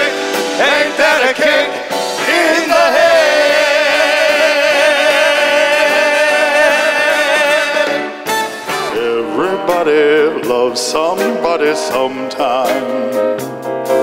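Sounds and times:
big band playing: 0:00.0 - 0:14.0
man singing long note with vibrato: 0:02.4 - 0:13.2.

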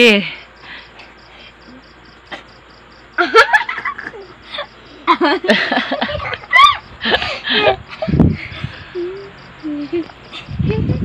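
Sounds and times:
children laughing and squealing: 0:03.2 - 0:11.0.

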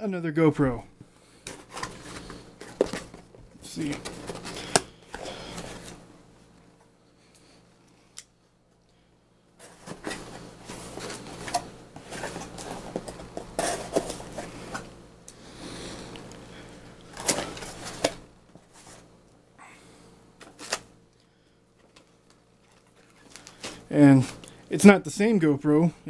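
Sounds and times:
cardboard box rustling and scraping: 0:01.5 - 0:03.2, 0:09.6 - 0:14.9.

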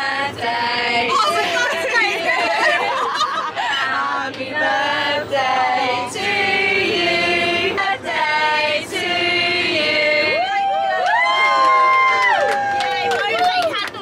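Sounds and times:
voices singing together: 0:00.0 - 0:10.6.

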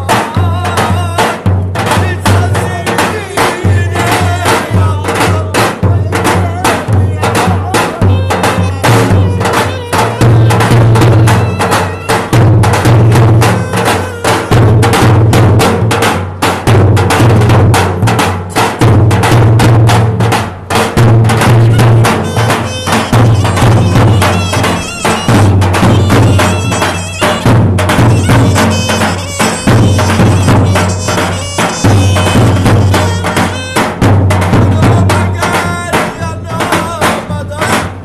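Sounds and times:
bass drums pounding: 0:00.0 - 0:38.0
clarinet melody: 0:08.0 - 0:15.0, 0:21.5 - 0:34.2.

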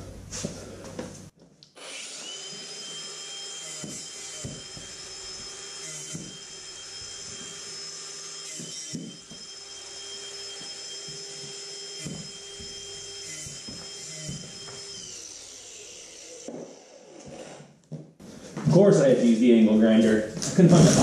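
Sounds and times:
angle grinder whining: 0:01.8 - 0:17.7.

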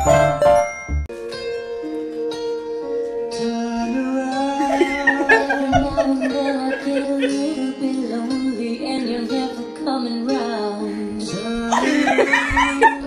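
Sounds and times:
song with sung melody: 0:01.4 - 0:13.0.

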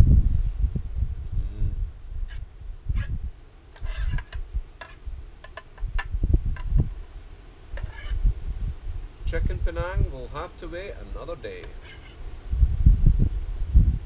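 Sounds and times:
wind buffeting microphone: 0:00.0 - 0:11.3, 0:12.1 - 0:14.0
spoon scraping foil pouch: 0:03.8 - 0:05.0, 0:11.6 - 0:12.2.

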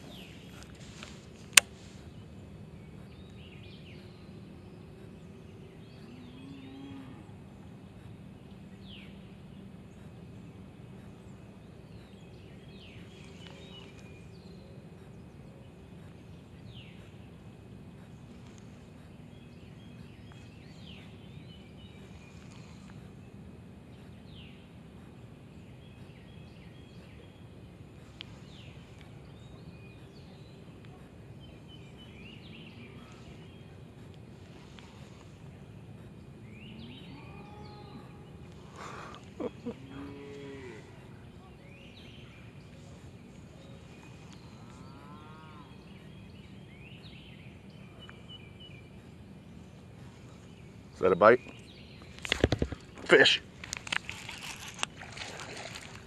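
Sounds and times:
cow mooing: 0:39.7 - 0:40.9, 0:44.6 - 0:45.7.

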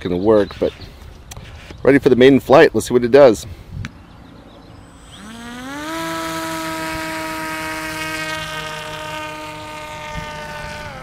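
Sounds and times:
electric motor propeller whine: 0:04.3 - 0:11.0.

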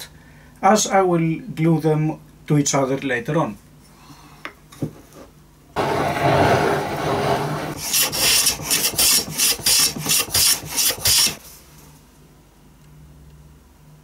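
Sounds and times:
hand plane shaving wood: 0:05.8 - 0:11.4.

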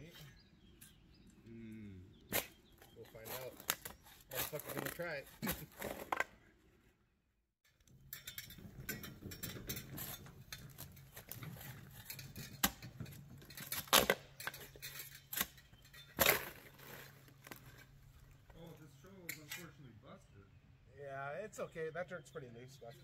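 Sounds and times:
shovel scraping gravel: 0:02.3 - 0:06.2, 0:08.8 - 0:18.2
shovel strikes: 0:02.3 - 0:06.2, 0:13.7 - 0:17.6.

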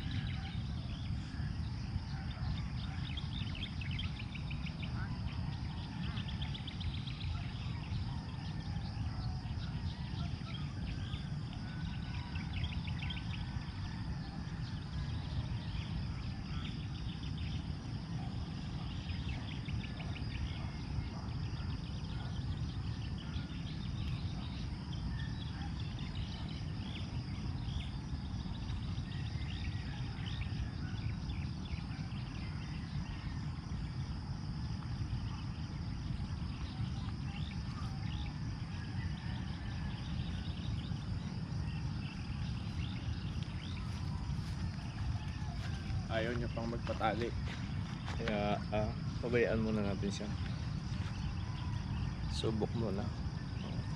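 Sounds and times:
high insect drone: 0:00.0 - 0:53.9
wind rumble on microphone: 0:00.0 - 0:53.9
bird chirps: 0:34.8 - 0:53.9.

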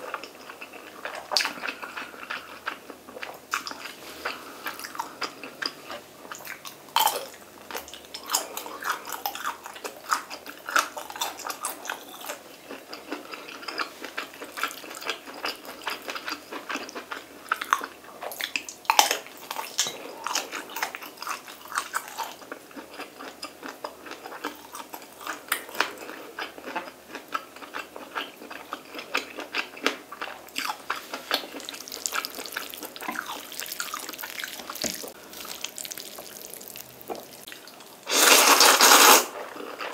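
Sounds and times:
wet chewing and smacking: 0:00.1 - 0:38.0
slurping noodles: 0:38.0 - 0:39.6.

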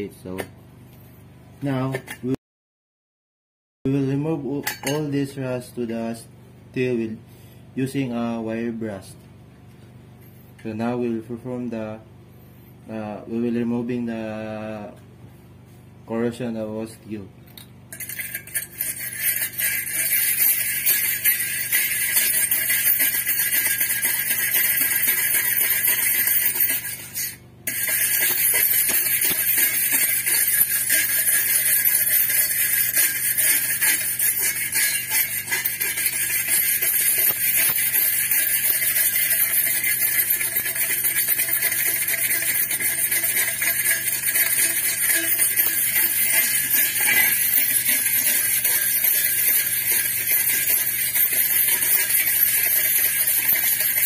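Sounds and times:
wire brush scrubbing metal: 0:17.9 - 0:54.0.

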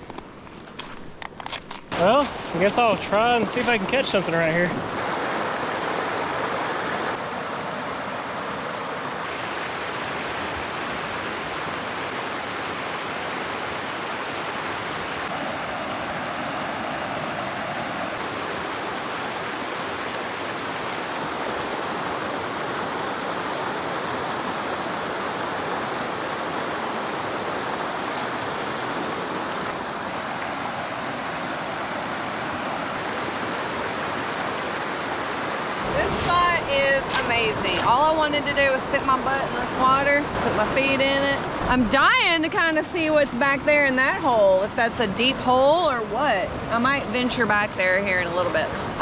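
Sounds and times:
river water rushing over rocks: 0:02.6 - 0:43.2.

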